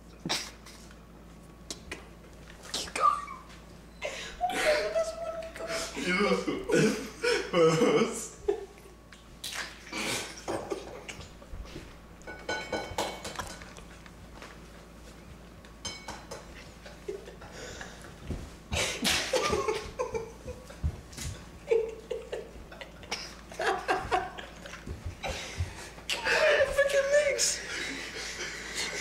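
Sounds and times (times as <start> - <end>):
stifled laughter: 4.2 - 8.8, 18.8 - 26.7
dishes clinking: 12.2 - 13.8, 15.8 - 16.6
eggs cracking against bowls: 12.2 - 14.2, 15.6 - 16.9.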